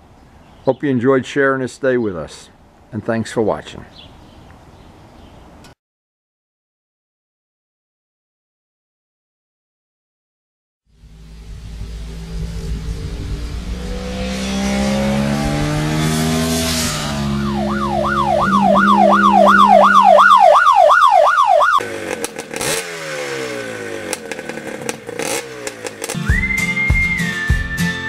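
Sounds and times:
motorcycle engine accelerating: 10.9 - 27.5.

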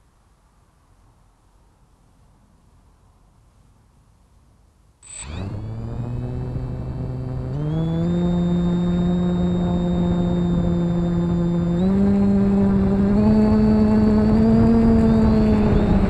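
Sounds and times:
small motor whining: 5.0 - 16.0.

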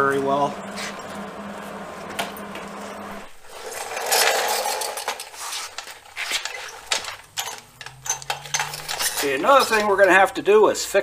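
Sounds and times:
low hum: 0.0 - 4.8
scraping: 0.0 - 10.3
metal parts clinking and knocking: 3.7 - 10.2.

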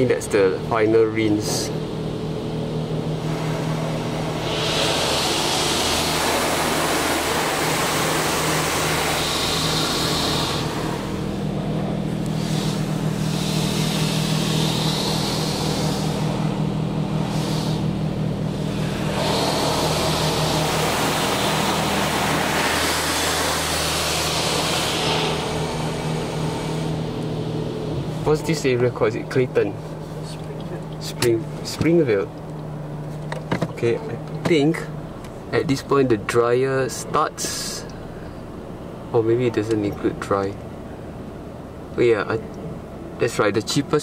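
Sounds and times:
steady low hum: 0.0 - 44.0
water spray hissing on car: 3.2 - 11.4, 12.1 - 27.0.

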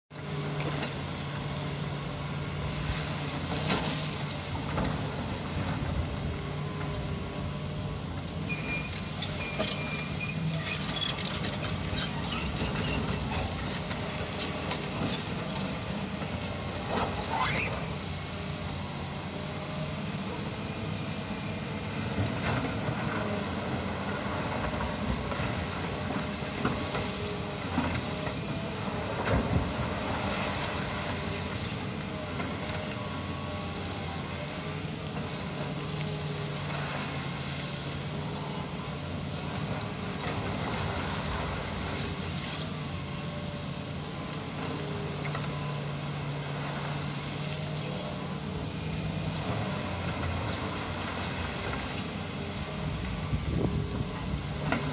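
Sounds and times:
excavator engine and hydraulic hum: 0.1 - 54.9.

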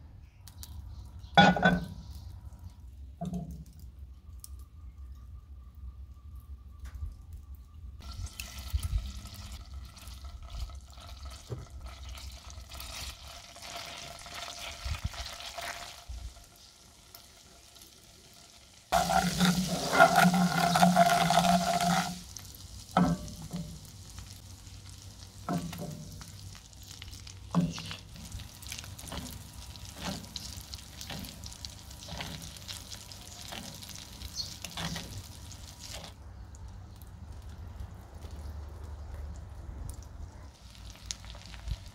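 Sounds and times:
butter sizzling in frying pan: 8.0 - 36.2, 40.6 - 41.9.

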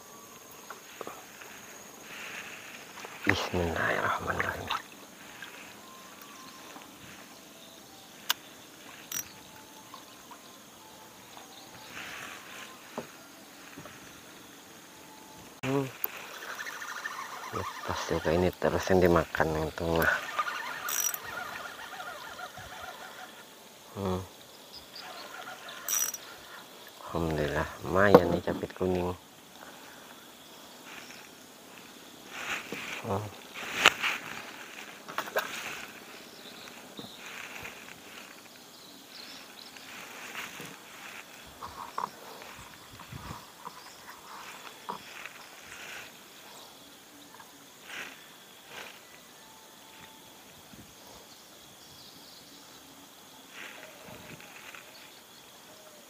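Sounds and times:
faint steady hiss: 0.0 - 56.0
river water lapping: 2.0 - 6.9, 15.9 - 17.9, 20.0 - 23.4, 30.9 - 38.5
fishing reel clicks and knocks: 9.1 - 9.3, 20.8 - 21.3, 25.9 - 26.2.

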